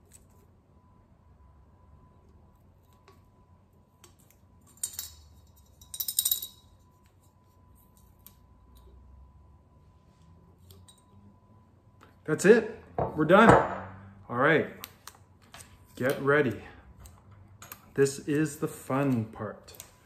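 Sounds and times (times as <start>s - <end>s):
coin rattling in coin bank: 4.7s - 6.8s.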